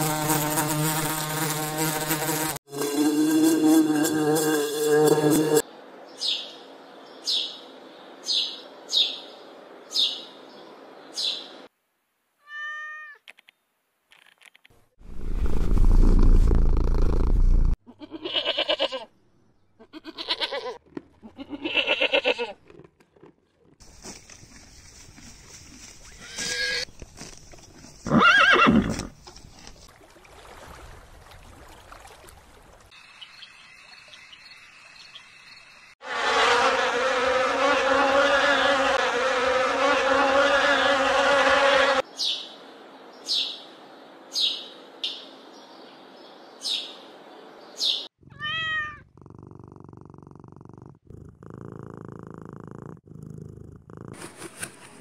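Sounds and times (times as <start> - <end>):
cat meow: 12.4 - 13.2, 48.2 - 49.1
goats bleating: 17.9 - 19.1, 19.8 - 22.6.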